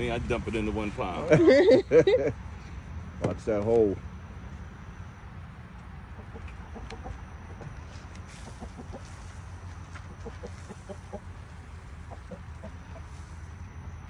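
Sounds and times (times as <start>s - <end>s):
steady low rumble: 0.0s - 14.0s
chickens clucking: 6.0s - 13.5s.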